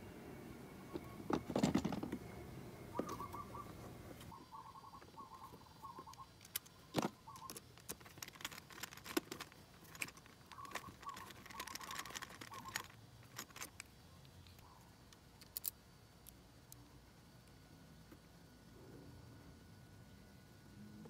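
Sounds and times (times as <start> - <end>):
bird chirping: 2.2 - 7.7, 10.4 - 12.8
metallic clicks of tools: 7.4 - 16.8.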